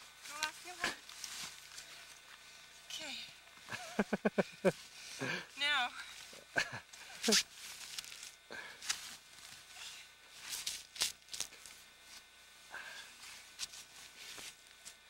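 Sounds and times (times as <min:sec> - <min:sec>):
person breathing strained: 0:05.0 - 0:05.5, 0:08.5 - 0:08.9, 0:12.7 - 0:13.3
scuffs: 0:07.2 - 0:12.2.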